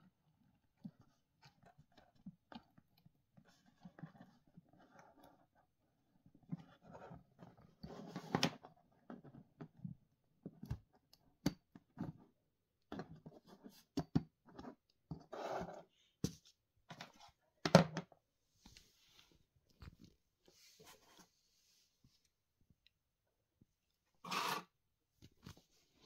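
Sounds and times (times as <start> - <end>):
rustling scrapes on cardboard: 24.2 - 24.7.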